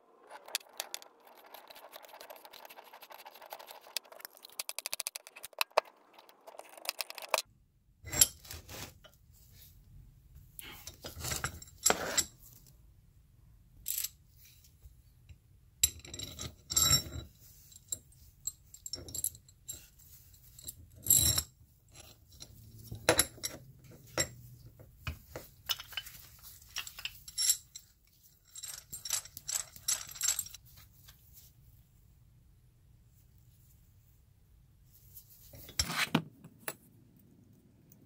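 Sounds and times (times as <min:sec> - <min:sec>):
metal vise parts clinking: 0:25.1 - 0:30.6.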